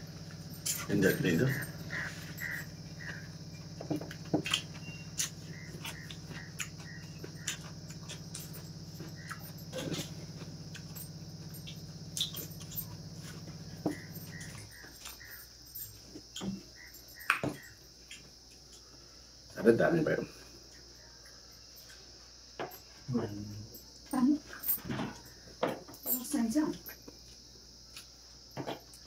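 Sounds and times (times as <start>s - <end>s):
high-pitched drone: 0.6s - 3.4s
wet chewing and lip-smacking: 4.1s - 10.1s.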